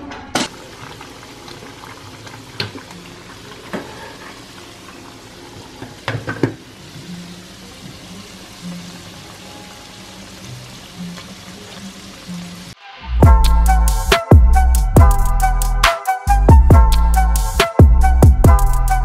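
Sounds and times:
chicken sizzling in oil: 0.5s - 13.0s.

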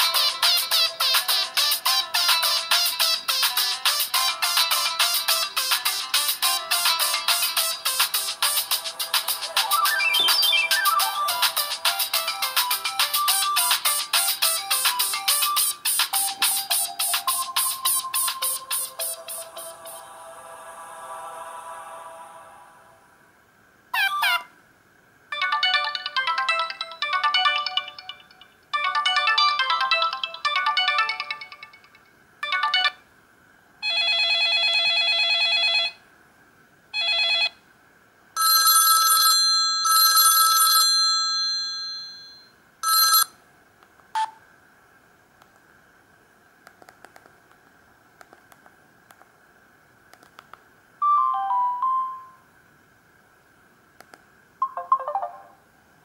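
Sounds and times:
bouncy phone ringtone melody: 0.0s - 19.5s, 25.3s - 33.0s, 38.4s - 43.3s, 51.0s - 52.4s, 54.6s - 55.6s
falling message alert tone: 9.6s - 11.4s, 51.0s - 52.4s, 54.6s - 55.6s
electronic phone ring: 33.8s - 36.0s, 37.0s - 37.6s, 38.4s - 43.4s.

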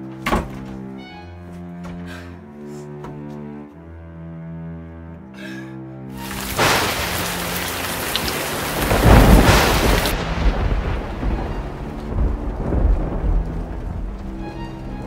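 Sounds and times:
heavy rain hiss: 6.2s - 15.0s
thunder rumbling: 6.2s - 15.0s.

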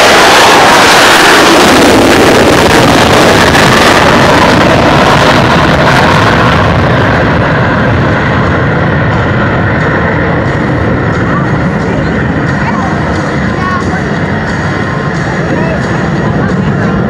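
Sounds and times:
jet engines flying low: 0.0s - 17.0s.

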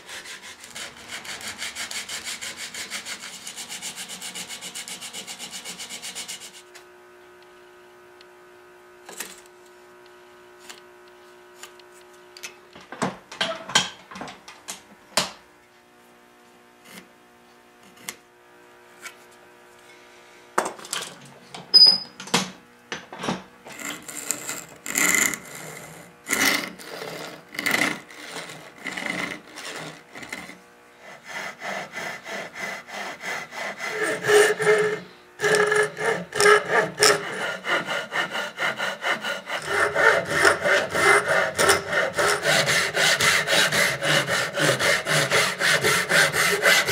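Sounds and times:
handsaw cutting wood: 0.0s - 6.6s, 23.7s - 46.9s.

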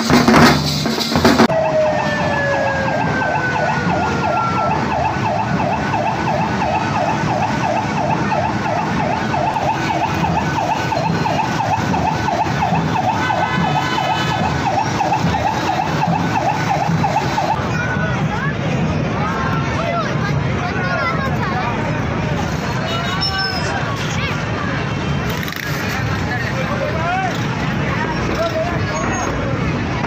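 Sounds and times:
crowd noise: 0.0s - 30.0s
siren warbling: 1.5s - 17.7s.

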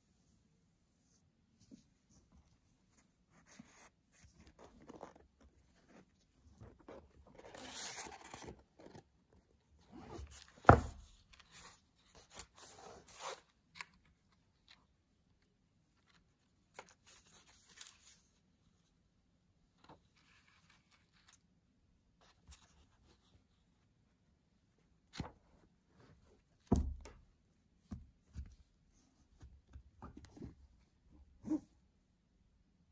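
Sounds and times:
book pages rustling: 1.6s - 14.8s, 16.0s - 18.4s, 25.1s - 26.8s.

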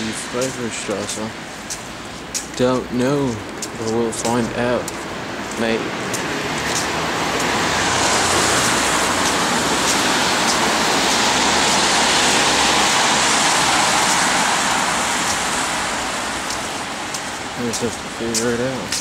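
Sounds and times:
vehicle passing by: 4.5s - 18.9s.

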